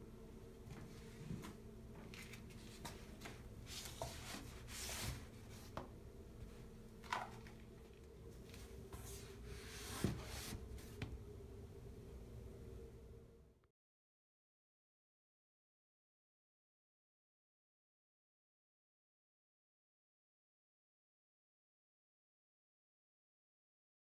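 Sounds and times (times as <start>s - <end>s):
steady low hum: 0.0s - 13.7s.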